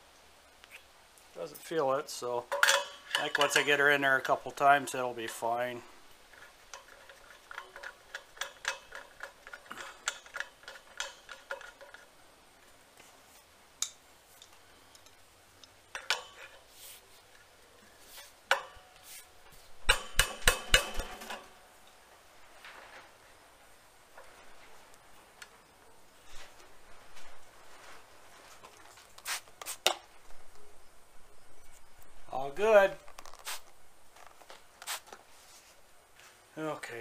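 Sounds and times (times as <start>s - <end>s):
wrench clanking against metal fitting: 2.5s - 3.8s, 6.7s - 12.0s
metal nut clicking on valve: 6.7s - 12.0s.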